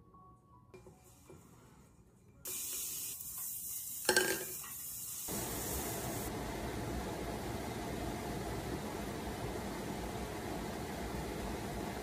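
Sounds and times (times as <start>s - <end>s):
steady hiss: 2.5s - 6.3s.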